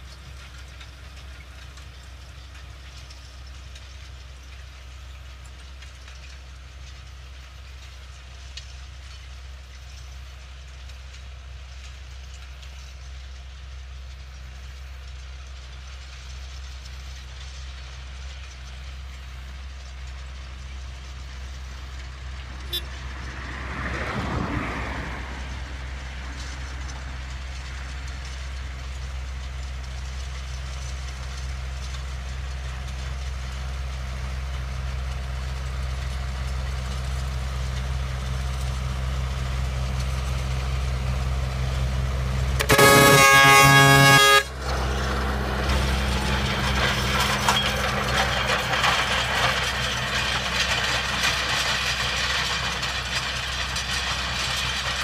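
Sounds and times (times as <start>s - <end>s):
implement rattling through soil: 0.0s - 55.0s
tractor diesel engine running: 0.0s - 55.0s
loud horn blast: 22.7s - 23.0s, 42.6s - 44.8s.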